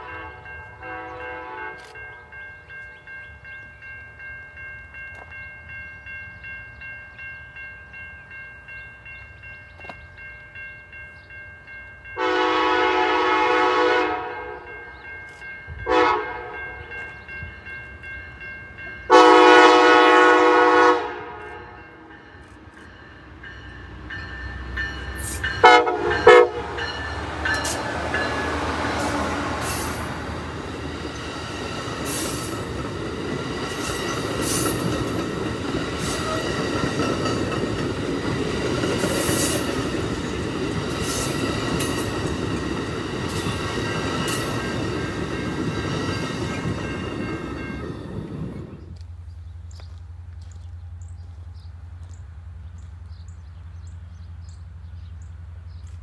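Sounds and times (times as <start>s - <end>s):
train horn blasts: 0.0s - 2.3s, 12.2s - 14.9s, 15.7s - 17.0s, 19.0s - 22.2s, 25.2s - 30.6s
train wheels rushing and clattering: 23.7s - 49.0s.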